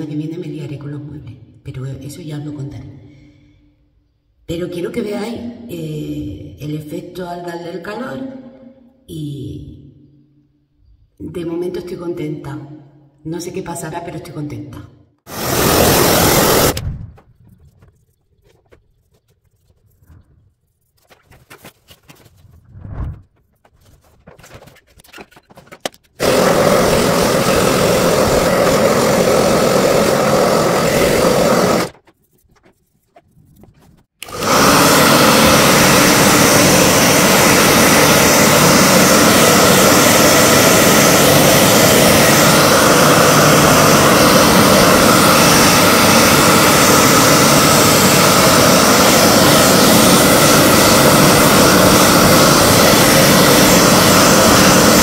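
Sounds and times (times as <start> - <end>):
hair dryer blowing: 15.3 - 16.8, 26.2 - 31.9, 34.2 - 55.0.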